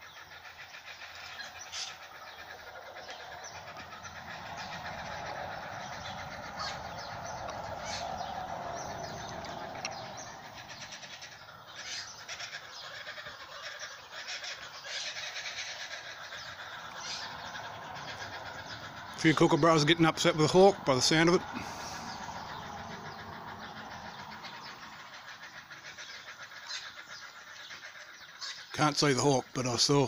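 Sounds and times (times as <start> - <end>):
kookaburras cackling: 0.0 - 30.0
low rushing hum: 2.0 - 11.7, 16.0 - 25.8.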